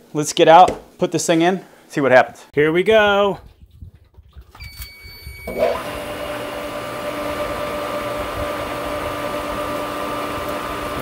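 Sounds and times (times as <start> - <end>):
control panel beeps: 4.6 - 5.7
pump motor humming: 4.6 - 11.0.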